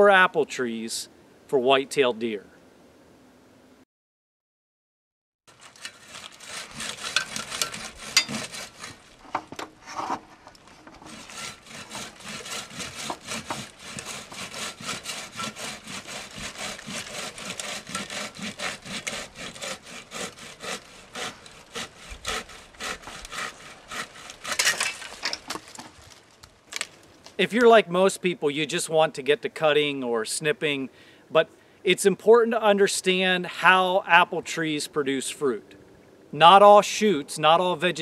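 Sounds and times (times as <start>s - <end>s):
hand saw cutting branch: 5.5s - 26.9s.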